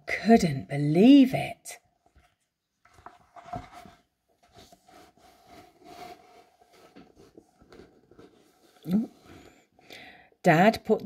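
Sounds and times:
book pages turning: 2.0s - 9.6s.

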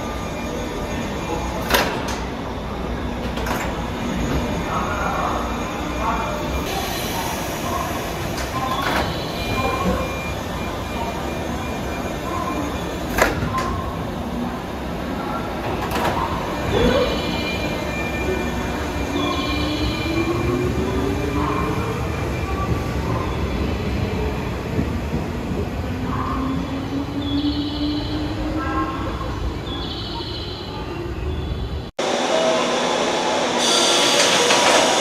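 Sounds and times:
electric train passing: 31.6s - 35.0s.

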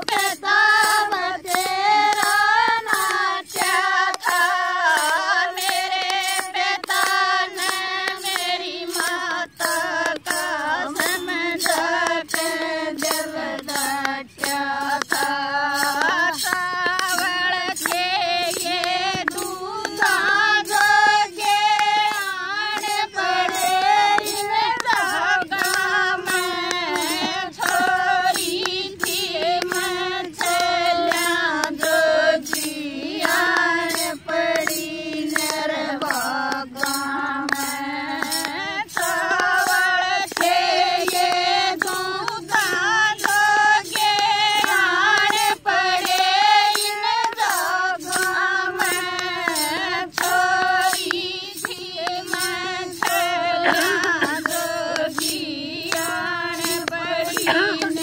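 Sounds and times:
sharp hand claps: 0.0s - 58.0s
women singing folk song: 0.0s - 58.0s.

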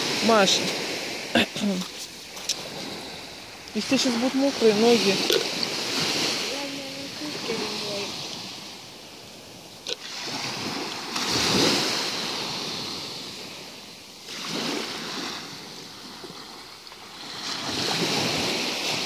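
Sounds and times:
small waves breaking on beach: 0.0s - 19.0s.

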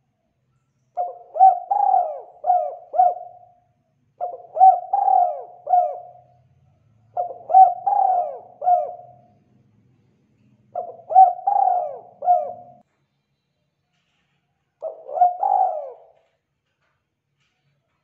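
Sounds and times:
dove cooing: 1.0s - 3.6s, 4.2s - 6.4s, 7.0s - 9.4s, 10.7s - 12.8s, 14.8s - 16.3s.

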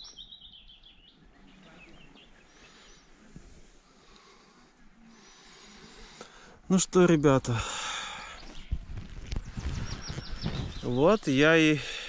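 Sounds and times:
bird chirping: 0.0s - 3.1s, 7.8s - 12.0s.

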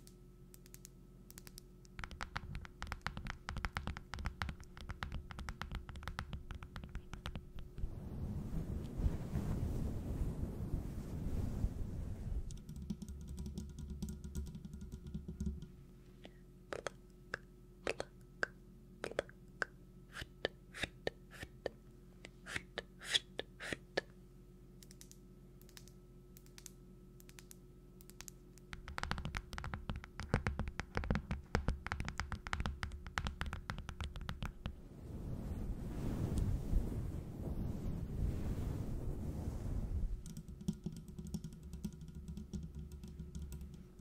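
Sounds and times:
crisp taps and clicks: 0.0s - 7.7s, 28.0s - 34.8s, 40.2s - 43.9s
faint steady hum: 0.0s - 44.0s.

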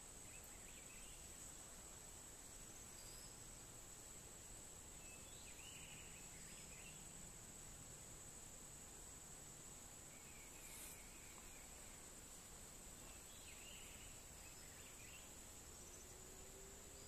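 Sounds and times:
faint bird chirps: 0.0s - 1.5s, 2.7s - 3.7s, 4.9s - 7.4s, 10.0s - 17.0s
high insect drone: 0.0s - 17.0s.

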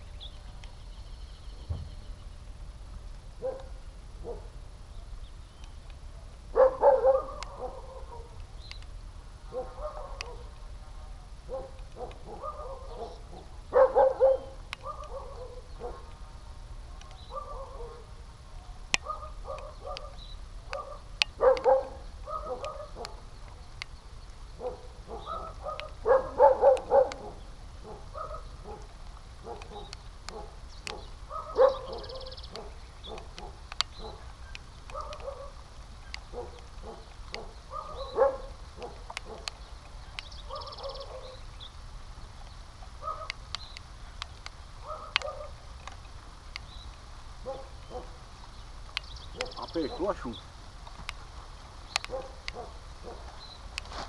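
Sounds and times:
dog barking: 3.4s - 4.6s, 6.5s - 8.4s, 9.5s - 10.5s, 11.5s - 16.1s, 17.0s - 23.3s, 24.6s - 34.3s, 34.9s - 35.6s, 36.3s - 39.5s, 40.1s - 41.4s, 43.0s - 43.4s, 44.8s - 45.6s, 47.4s - 48.2s, 52.1s - 53.3s.

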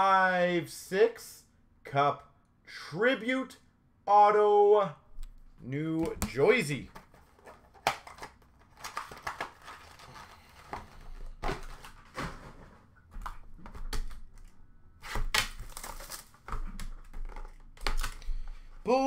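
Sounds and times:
packaging crinkling and tearing: 7.0s - 12.5s, 13.1s - 18.6s.

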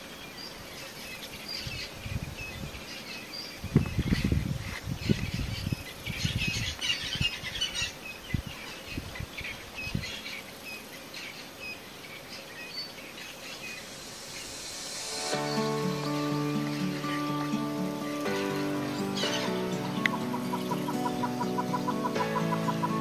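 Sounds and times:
high bird chirps: 12.4s - 23.0s
music: 14.8s - 23.0s.

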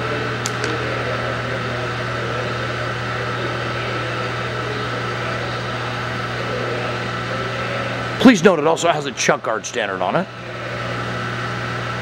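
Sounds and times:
lathe motor humming: 0.0s - 12.0s.

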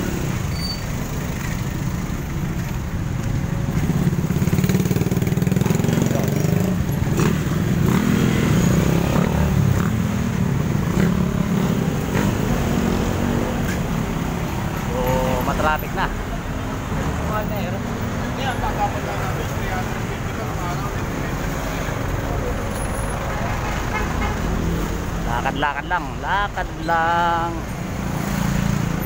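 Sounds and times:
vehicle engines running: 0.0s - 29.0s.

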